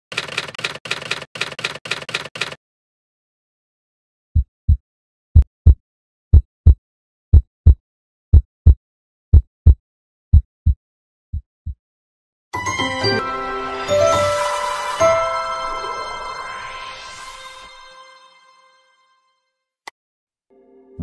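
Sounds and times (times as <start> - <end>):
typewriter key clicks: 0.1 - 2.6
heartbeat thumps: 4.4 - 4.8, 5.4 - 11.8.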